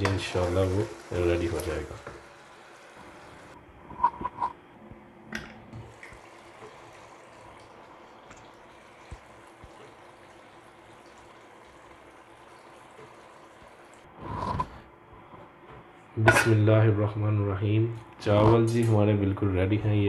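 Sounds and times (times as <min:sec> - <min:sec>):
curry simmering in a frying pan: 0:00.0 - 0:03.6, 0:05.9 - 0:14.1.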